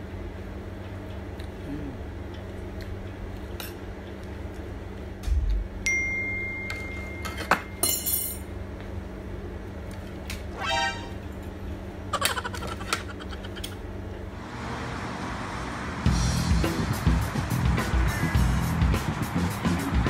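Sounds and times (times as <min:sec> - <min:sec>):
utensils clinking on a plate: 0:06.7 - 0:08.5.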